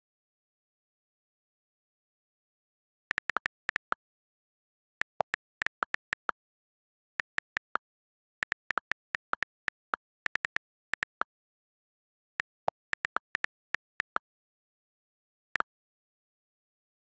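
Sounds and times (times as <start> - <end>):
on-screen keyboard clicks: 3.1 - 4.0, 5.0 - 6.4, 7.2 - 7.8, 8.4 - 11.3, 12.4 - 14.2.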